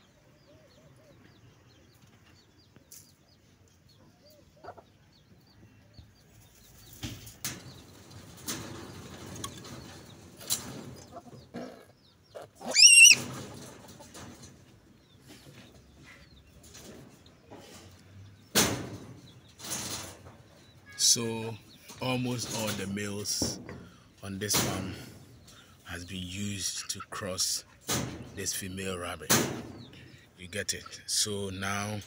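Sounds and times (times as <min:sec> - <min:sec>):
rabbits scuffling on wire cage floor: 0:06.3 - 0:11.4, 0:12.6 - 0:21.0
high wavering animal call: 0:12.6 - 0:13.2
knocks against cage: 0:18.5 - 0:20.4, 0:24.5 - 0:25.0, 0:27.8 - 0:28.4, 0:29.3 - 0:29.9.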